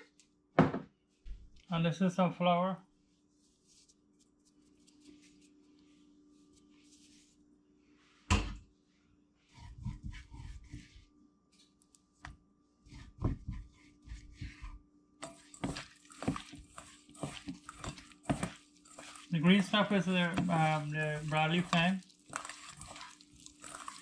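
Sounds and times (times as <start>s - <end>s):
hand tossing fish in bowl: 15.2s - 24.0s.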